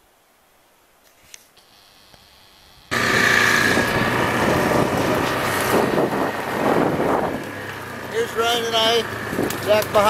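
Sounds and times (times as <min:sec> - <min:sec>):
quad engine running: 0:01.6 - 0:10.0
wind buffeting microphone: 0:02.8 - 0:10.0.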